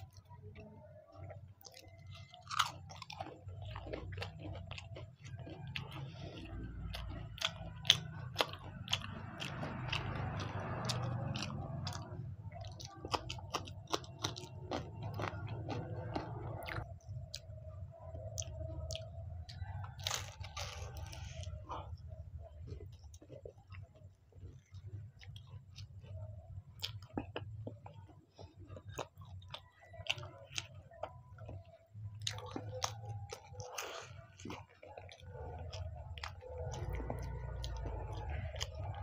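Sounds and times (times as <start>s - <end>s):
chewing crunchy pastry: 0.0s - 39.0s.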